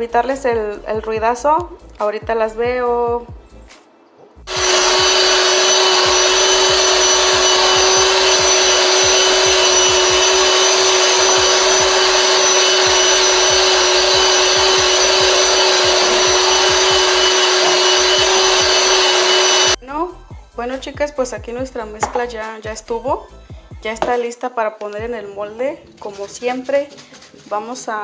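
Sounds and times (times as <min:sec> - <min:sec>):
beaters churning batter: 0:04.5 - 0:19.8
electric hand mixer whining: 0:04.5 - 0:19.8.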